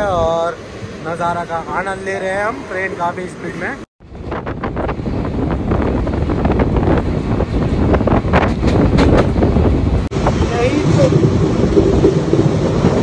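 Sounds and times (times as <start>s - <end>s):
train rumbling: 0.0s - 13.0s
wind buffeting microphone: 4.0s - 13.0s
knocks and clatter: 7.5s - 10.1s.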